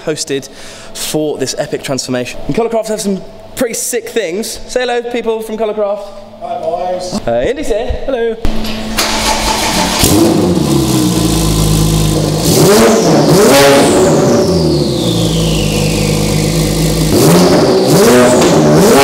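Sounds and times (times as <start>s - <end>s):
sports car engine revving: 9.1s - 19.0s.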